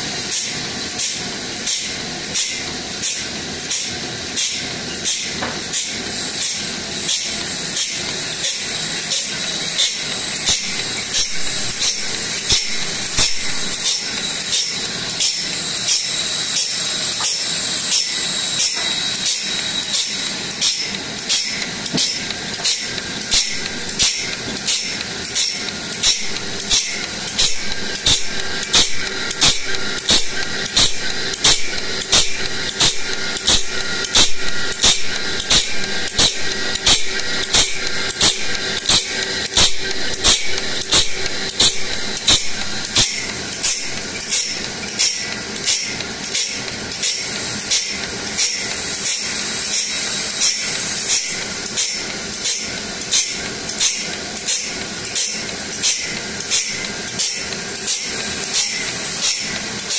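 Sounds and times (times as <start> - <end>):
rhythmic grinding strokes: 6.0 - 59.9
abrasive wheel hissing: 8.7 - 44.9.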